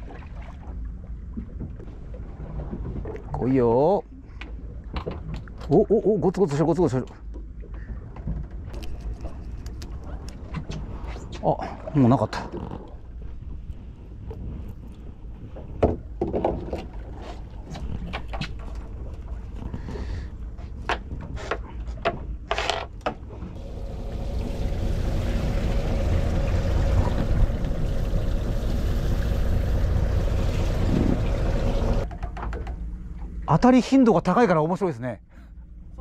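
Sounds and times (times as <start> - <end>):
boat engine rumbling: 23.4 - 33.6.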